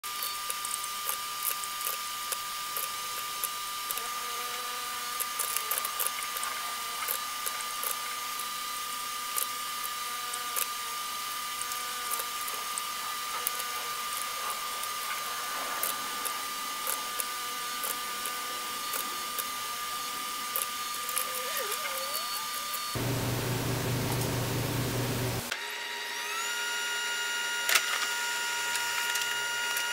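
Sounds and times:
high-pitched whine: 11.5 - 25.5.

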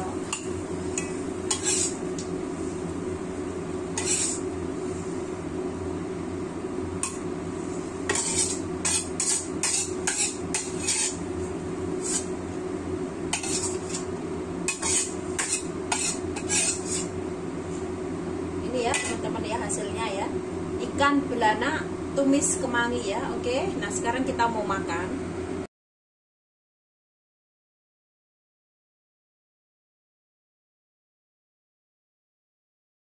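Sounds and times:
steady low hum: 0.0 - 25.7
metal spatula scraping a wok: 0.2 - 2.0, 3.9 - 4.5, 7.0 - 11.3, 12.0 - 12.4, 13.3 - 14.1, 14.7 - 17.2, 18.9 - 19.3.

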